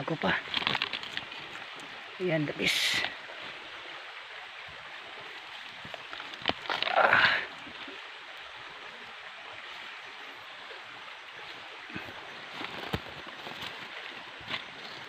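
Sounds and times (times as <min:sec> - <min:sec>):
stems snapping: 0:00.5 - 0:01.9, 0:05.9 - 0:07.2.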